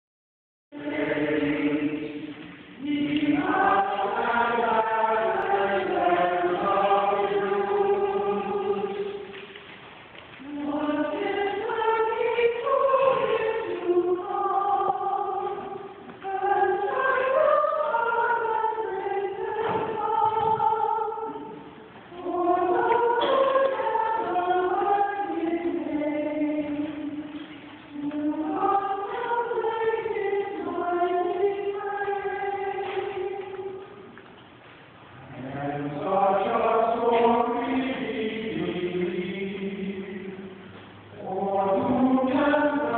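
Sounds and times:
church choir singing a hymn: 0:00.8 - 0:09.5, 0:10.4 - 0:34.1, 0:35.2 - 0:42.9.

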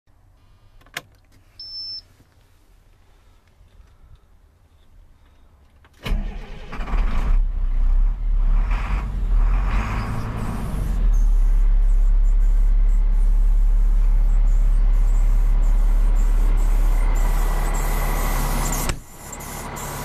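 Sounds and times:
diesel truck engine idling: 0:07.4 - 0:20.0.

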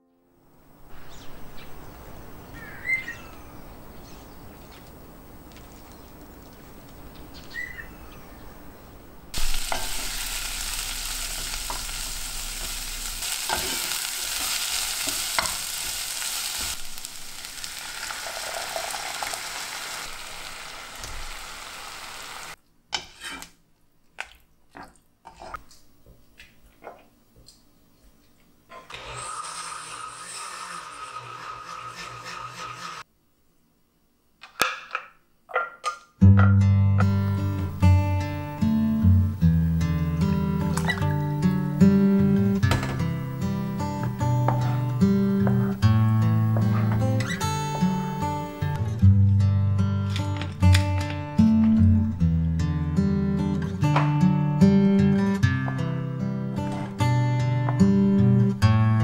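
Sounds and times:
bird chirps: 0:01.0 - 0:04.9, 0:07.0 - 0:09.0
onions sizzling in oil: 0:09.4 - 0:22.6.

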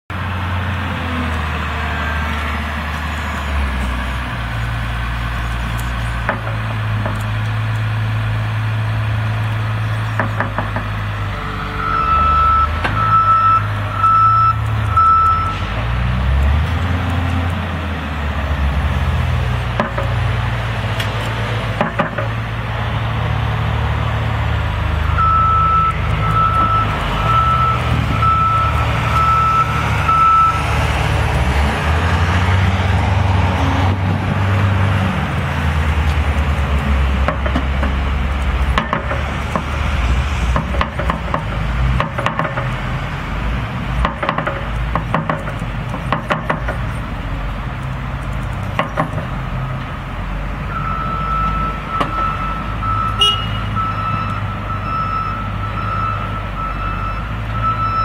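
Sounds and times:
diesel engine under load: 0:00.1 - 0:58.0
sharp knocks: 0:10.2 - 0:10.9, 0:21.8 - 0:22.4, 0:38.7 - 0:39.7, 0:40.5 - 0:42.8, 0:44.0 - 0:46.9, 0:48.7 - 0:49.3
backup alarm beeping: 0:11.4 - 0:15.6, 0:25.2 - 0:30.6, 0:50.7 - 0:58.0.

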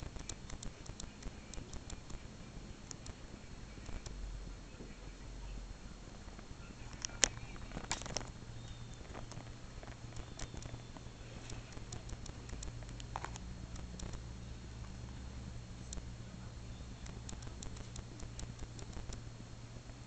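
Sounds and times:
low steady hum: 0:00.0 - 0:20.0
soft handling clicks and rustles: 0:06.1 - 0:14.2.

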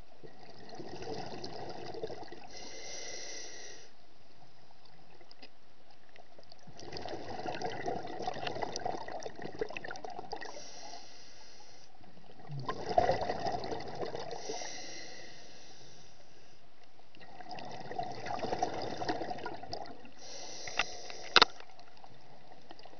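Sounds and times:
exhaled bubbles underwater: 0:00.2 - 0:02.6, 0:06.4 - 0:10.7, 0:12.1 - 0:14.7, 0:17.2 - 0:20.4
regulator inhaling hiss: 0:02.5 - 0:04.0, 0:10.5 - 0:12.0, 0:14.4 - 0:16.7, 0:20.2 - 0:21.6.

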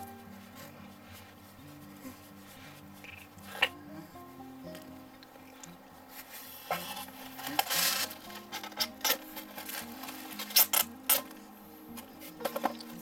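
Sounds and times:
quiet background music: 0:00.0 - 0:13.0
rustling: 0:00.0 - 0:13.0.

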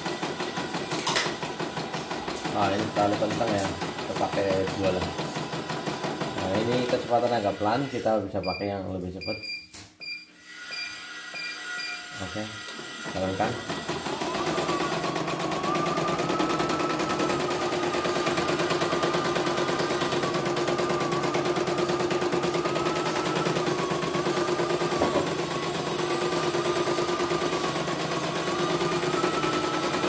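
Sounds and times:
machine whine: 0:10.6 - 0:30.0.

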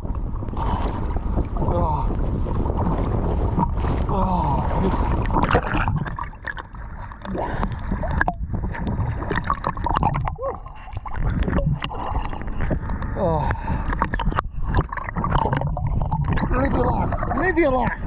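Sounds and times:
bubbling and clicks: 0:00.0 - 0:03.8, 0:04.8 - 0:18.0
water sloshing and splashing: 0:00.0 - 0:18.0.

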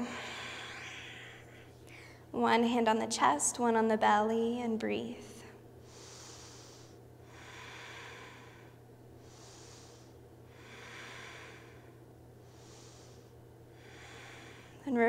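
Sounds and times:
woman breathing: 0:00.0 - 0:02.3, 0:05.8 - 0:14.9
low hum: 0:00.0 - 0:15.0.

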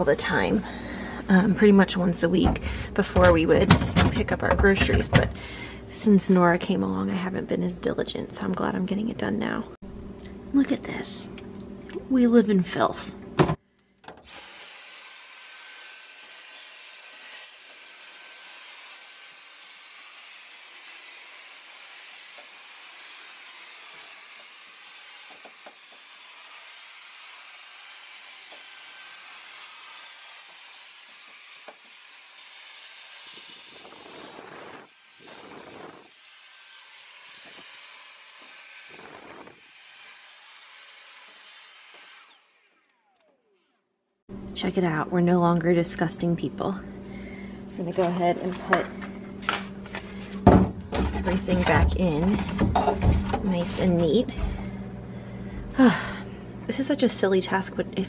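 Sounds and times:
handheld vacuum motor whine: 0:14.1 - 0:43.8, 0:51.3 - 0:56.4.

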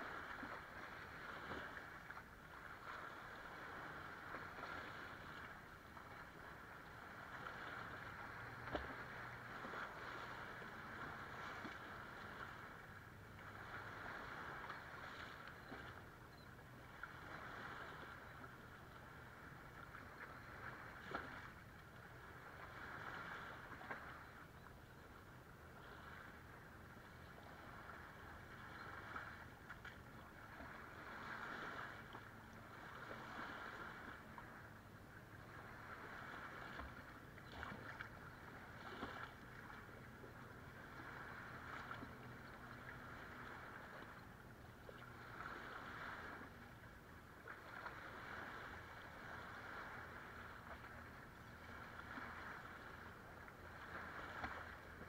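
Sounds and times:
distant boat engines humming: 0:00.0 - 0:55.0
light water splashes: 0:00.0 - 0:55.0
waves lapping on shore: 0:00.0 - 0:55.0.

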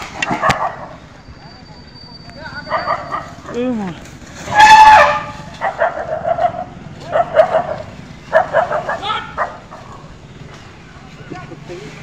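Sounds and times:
puppies yapping: 0:02.6 - 0:03.5, 0:04.6 - 0:10.0.

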